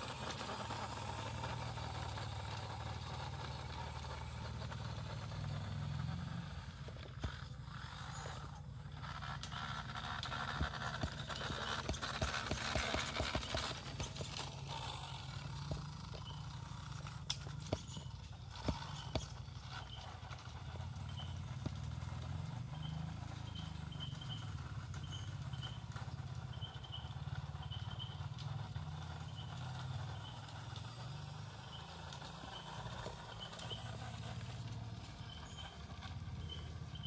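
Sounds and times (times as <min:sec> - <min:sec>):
tyres scraping on concrete: 0:00.0 - 0:26.3
electric motor humming: 0:00.0 - 0:37.0.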